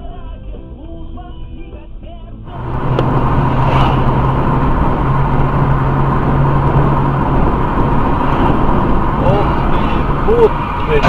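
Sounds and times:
car engine hum: 2.4s - 11.0s
road noise inside car: 2.4s - 11.0s.

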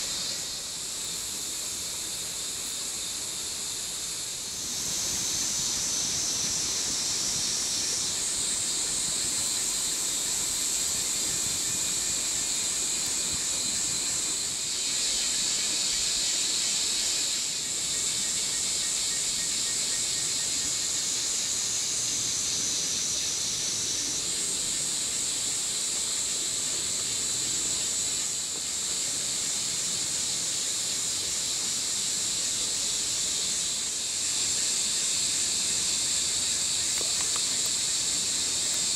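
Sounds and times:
insects buzzing: 0.0s - 38.9s.

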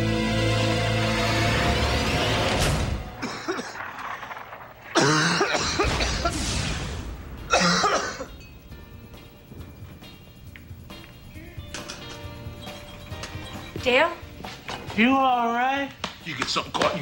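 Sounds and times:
background music: 0.0s - 3.3s, 7.0s - 17.0s
man choking and coughing: 3.2s - 3.8s, 4.9s - 6.3s, 7.5s - 8.3s.

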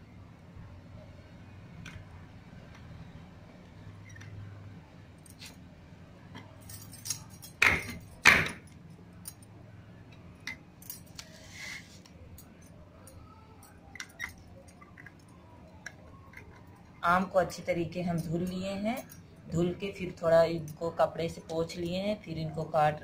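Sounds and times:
bangles clinking: 6.3s - 11.7s, 12.3s - 22.4s.

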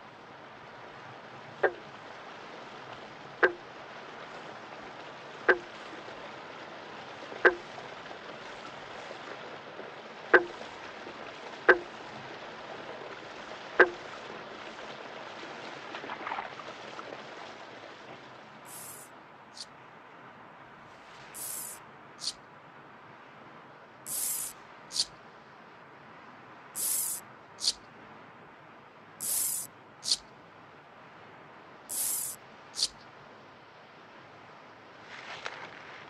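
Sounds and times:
creek water running: 0.0s - 28.2s, 28.9s - 33.3s
short sharp clicking call: 26.8s - 27.8s.

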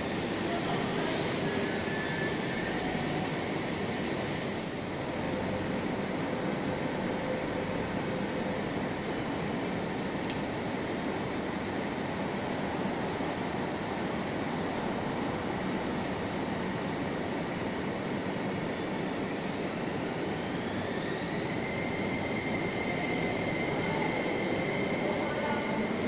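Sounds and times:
train rushing rumble: 0.0s - 10.0s, 19.2s - 26.0s.

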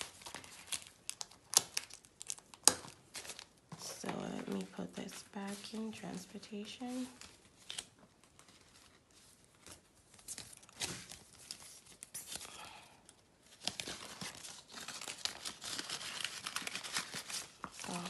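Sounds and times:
banknotes rustling: 3.0s - 12.5s, 13.6s - 18.0s.

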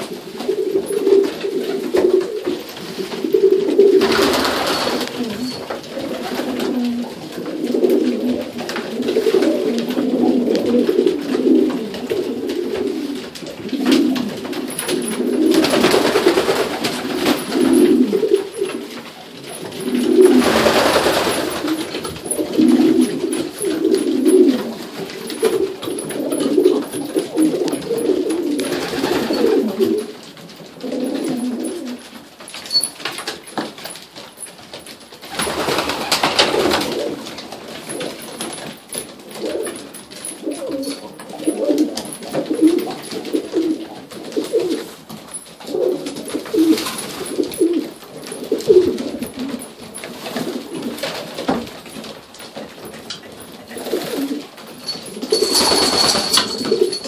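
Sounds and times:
pigeons cooing: 0.0s - 32.2s, 35.3s - 38.6s, 39.2s - 45.0s, 45.6s - 51.6s, 53.7s - 57.0s
rustling bursts: 0.2s - 30.2s.

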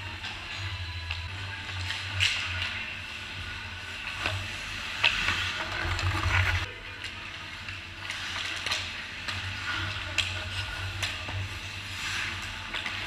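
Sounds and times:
skates scraping on ice: 4.3s - 6.7s.

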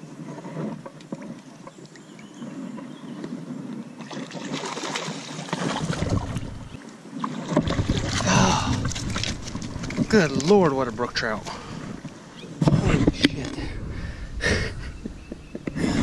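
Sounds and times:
fish splashing in water: 4.0s - 10.5s.

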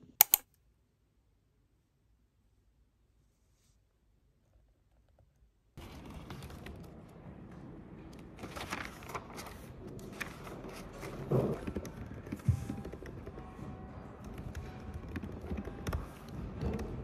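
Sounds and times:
paper rustling: 8.4s - 11.8s.

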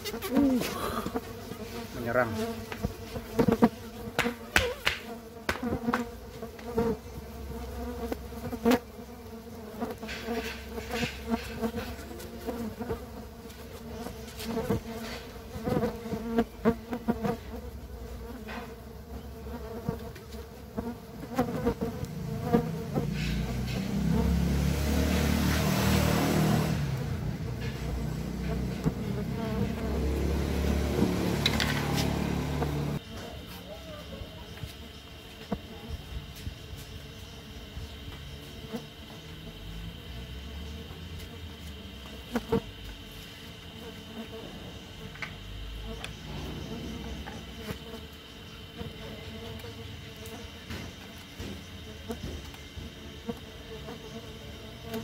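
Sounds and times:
bees buzzing: 0.0s - 55.0s
hands knocking on wooden hive: 4.2s - 6.1s
passing motor vehicle: 22.2s - 33.0s.

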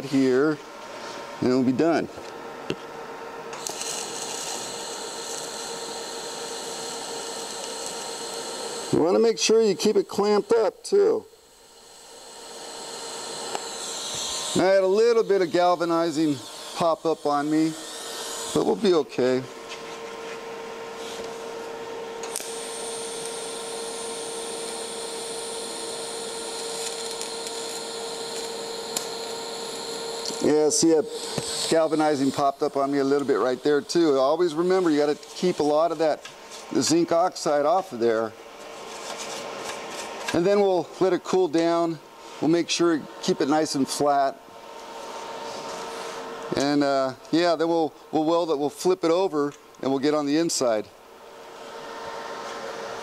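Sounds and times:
steady hum: 0.0s - 53.0s
welding arc striking click: 3.5s - 5.8s, 6.4s - 8.5s, 13.4s - 14.8s, 22.2s - 23.6s, 26.1s - 34.2s
welding arc hissing: 3.6s - 19.5s, 22.2s - 38.1s.

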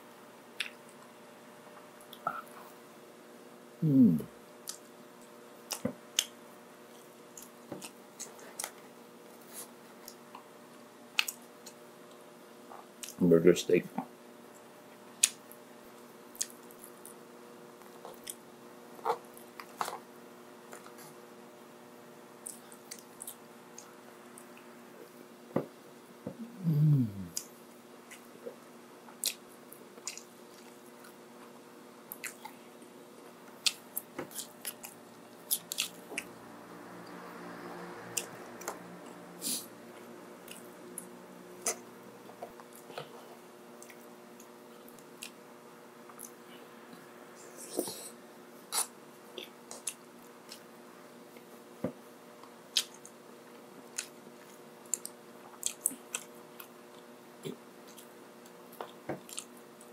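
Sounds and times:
person chewing with mouth clicks: 16.4s - 17.2s, 17.8s - 18.4s, 28.1s - 31.2s, 32.1s - 32.6s, 33.5s - 36.3s, 40.0s - 41.9s, 42.5s - 45.4s, 46.0s - 46.4s, 48.7s - 50.7s, 52.4s - 53.2s, 53.9s - 59.9s.

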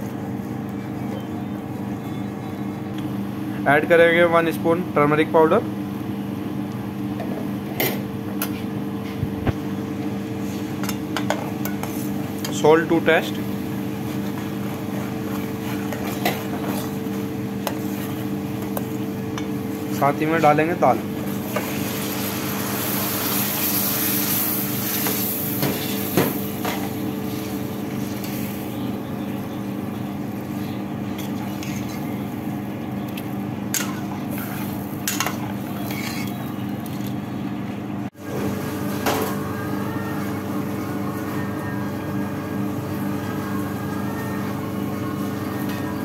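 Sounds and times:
steady hum: 0.0s - 46.0s
food sizzling and bubbling in pan: 13.4s - 19.9s, 21.0s - 36.9s.

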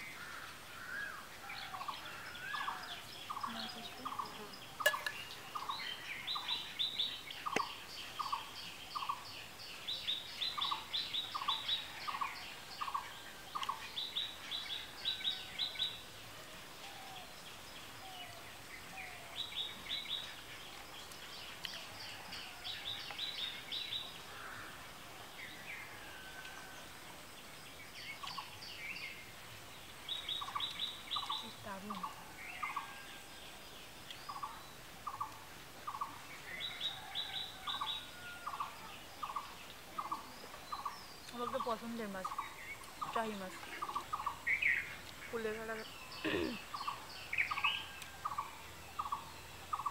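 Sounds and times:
birds calling sharp notes: 0.0s - 9.2s, 30.2s - 33.2s, 34.0s - 49.9s.

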